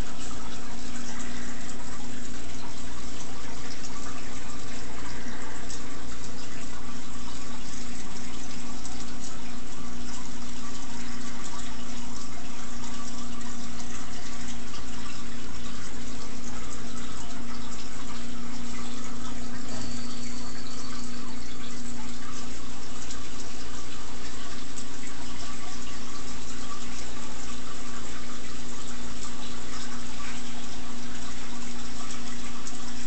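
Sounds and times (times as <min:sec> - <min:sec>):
low hum: 0:00.0 - 0:24.2
bubbling aquarium water: 0:00.0 - 0:33.0.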